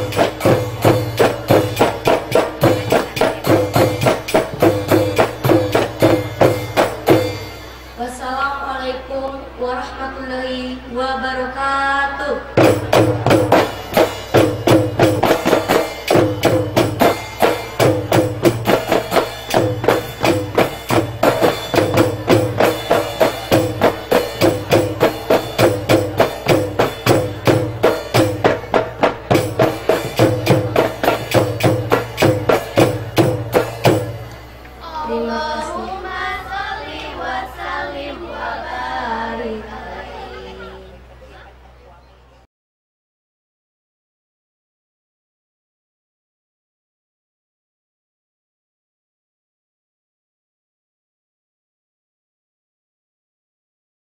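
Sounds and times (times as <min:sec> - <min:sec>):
frame drums beating fast rhythm: 0:00.0 - 0:07.9, 0:12.6 - 0:34.6.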